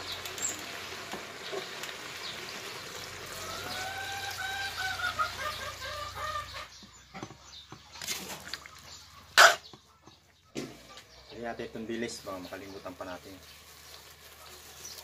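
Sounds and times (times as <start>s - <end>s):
rooster crowing: 3.3s - 6.6s.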